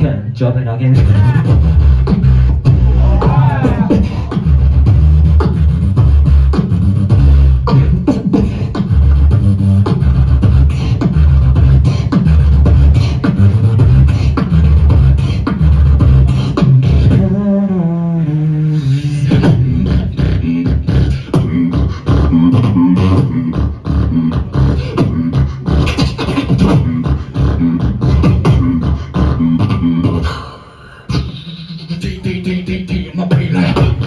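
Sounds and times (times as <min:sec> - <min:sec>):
pitched vocal line: 0:00.0 - 0:06.2, 0:16.3 - 0:34.0
beatboxing through pa: 0:00.0 - 0:34.0.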